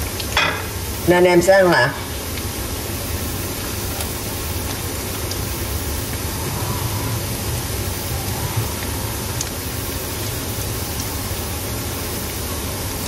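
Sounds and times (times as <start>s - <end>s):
patties sizzling in oil: 0.0s - 13.0s.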